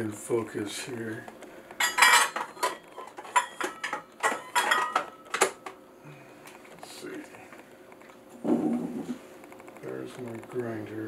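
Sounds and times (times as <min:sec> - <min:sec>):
metal kitchenware clinking: 0:01.8 - 0:05.4.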